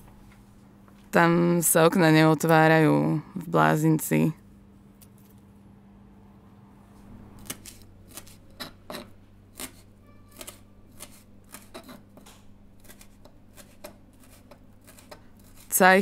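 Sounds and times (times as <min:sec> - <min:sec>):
steady low hum: 0:00.0 - 0:16.0
faint ring: 0:10.0 - 0:10.6.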